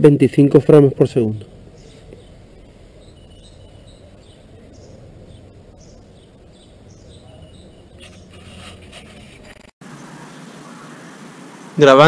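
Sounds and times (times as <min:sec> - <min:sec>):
high bird chirps: 0:01.8 - 0:08.6.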